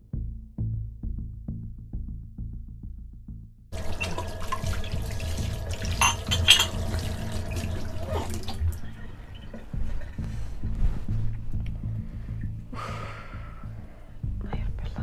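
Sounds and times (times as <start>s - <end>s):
tap running into a metal sink: 3.8s - 8.6s
glass clinking: 5.9s - 7.0s.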